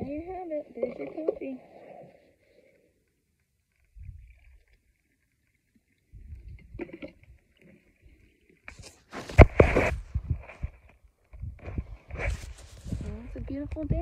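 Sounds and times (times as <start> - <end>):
phone rustle and knock: 8.7 - 13.1.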